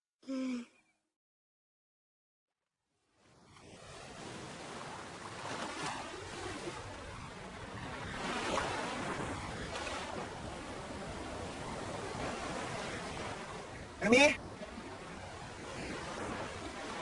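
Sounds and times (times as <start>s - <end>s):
wind: 3.0s - 17.0s
sea waves washing onto beach: 3.5s - 17.0s.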